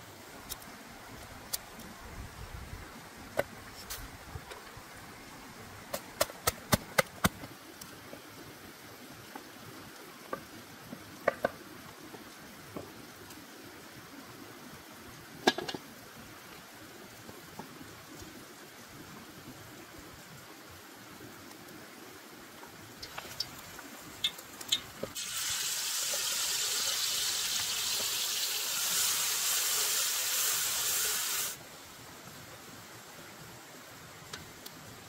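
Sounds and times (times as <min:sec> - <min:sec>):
shallow stream hissing: 0:00.0 - 0:35.0
cooking knocks and clicks: 0:11.2 - 0:11.6, 0:23.0 - 0:25.2.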